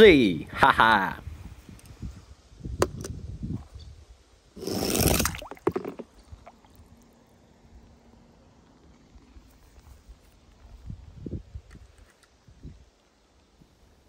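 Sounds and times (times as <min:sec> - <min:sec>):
splash into water: 0:04.6 - 0:06.8.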